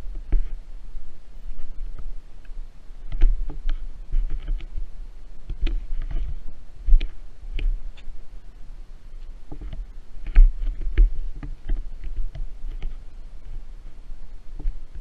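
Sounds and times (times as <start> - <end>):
low thumps of camera jostling: 3.1 - 8.2, 9.2 - 13.0.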